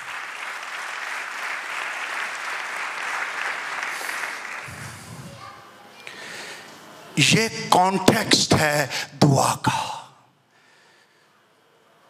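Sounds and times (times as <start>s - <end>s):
congregation applauding: 0.0s - 5.0s.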